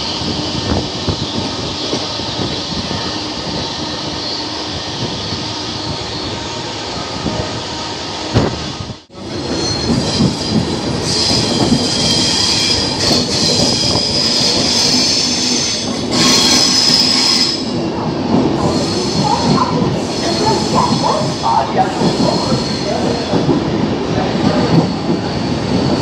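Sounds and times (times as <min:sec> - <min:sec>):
train rumbling over rails: 0:00.0 - 0:26.0
high wheel squeal: 0:09.3 - 0:17.8.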